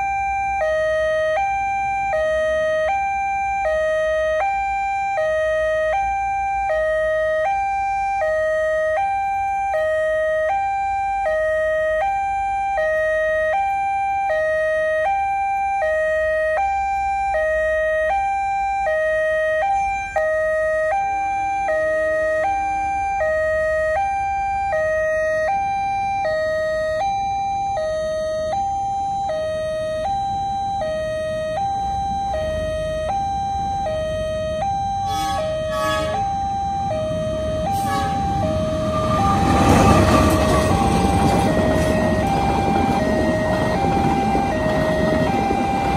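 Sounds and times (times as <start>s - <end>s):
two-tone crossing alarm: 0.0s - 45.9s
train rumbling past: 37.2s - 45.9s.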